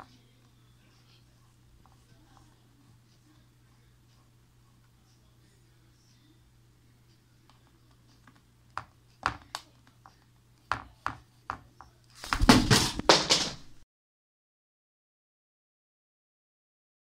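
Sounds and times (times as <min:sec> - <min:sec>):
bird scuffling: 0:12.2 - 0:13.8.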